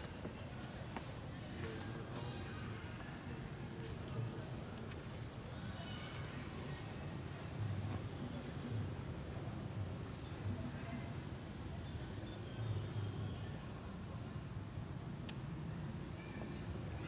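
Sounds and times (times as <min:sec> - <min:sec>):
faint clicks: 0:15.2 - 0:15.4.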